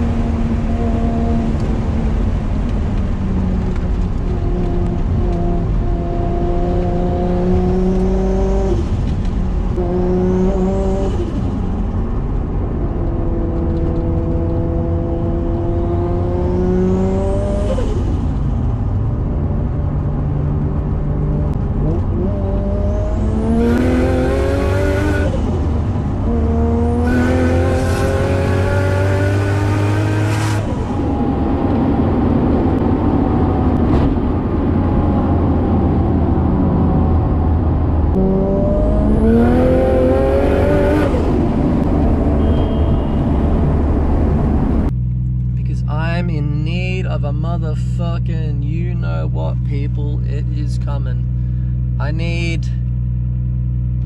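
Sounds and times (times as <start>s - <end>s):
car engine revving through gears: 0.0s - 45.6s
turbo whistle: 42.4s - 43.4s.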